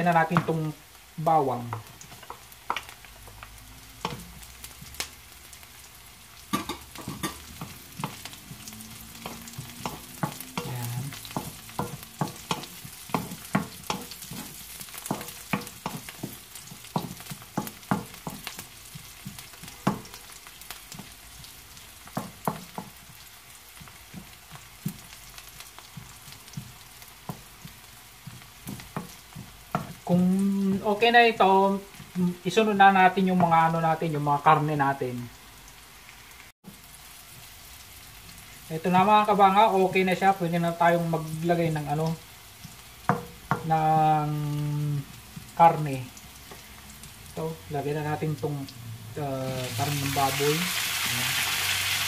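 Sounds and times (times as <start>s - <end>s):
onions sizzling in oil: 0.0s - 52.0s
wooden spatula scraping a pan: 6.5s - 33.7s.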